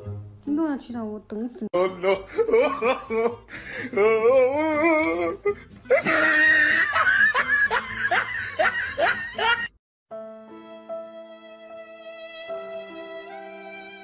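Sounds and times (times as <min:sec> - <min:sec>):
person laughing hard: 0:01.8 - 0:09.7
soft violin music: 0:10.1 - 0:14.0.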